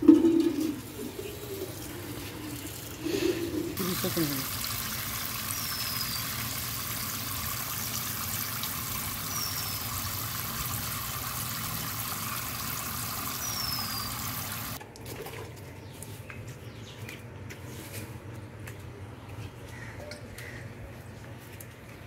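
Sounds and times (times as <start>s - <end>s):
water pouring from watering can: 3.8s - 15.6s.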